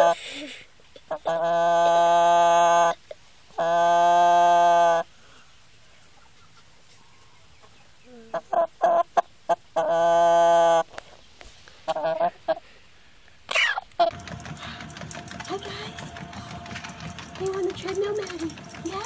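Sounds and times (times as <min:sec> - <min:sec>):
hen clucking: 0:06.1 - 0:10.8, 0:11.9 - 0:12.6
long steady tones: 0:14.1 - 0:19.0.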